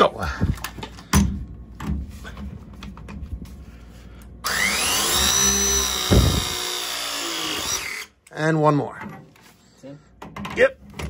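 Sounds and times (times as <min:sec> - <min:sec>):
press tool motor whine: 0:04.4 - 0:08.1.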